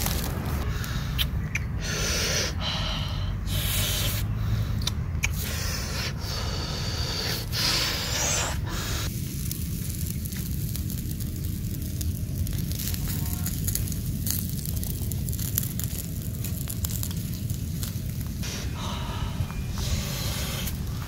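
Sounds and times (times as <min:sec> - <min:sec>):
footsteps in dry leaves: 0:00.0 - 0:00.7
low rumble: 0:00.0 - 0:21.0.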